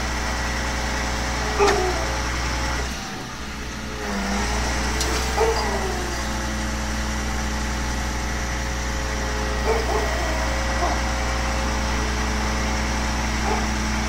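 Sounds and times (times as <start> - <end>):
crane engine running: 0.0 - 14.0
short metallic squeals: 4.0 - 6.4.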